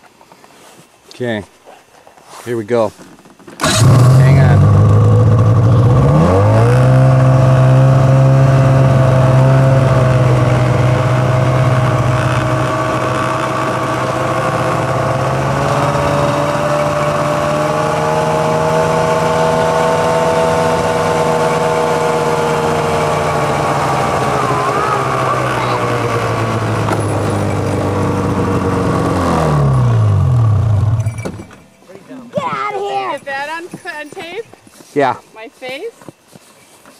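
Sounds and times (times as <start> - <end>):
snowmobile engine at high revs: 3.6 - 31.3.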